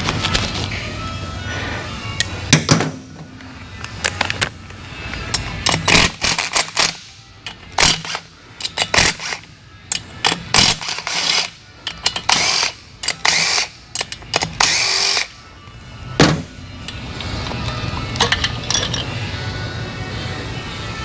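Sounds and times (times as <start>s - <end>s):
clinks of tools and parts: 3.8s - 14.7s, 16.8s - 19.2s.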